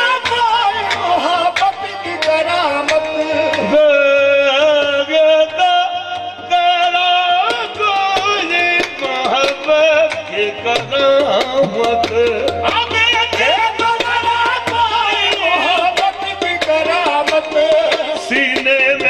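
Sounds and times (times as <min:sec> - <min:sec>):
lead singer ornamented vocals: 0:00.0 - 0:19.0
sustained harmonium: 0:00.0 - 0:19.0
drum strokes: 0:07.5 - 0:19.0.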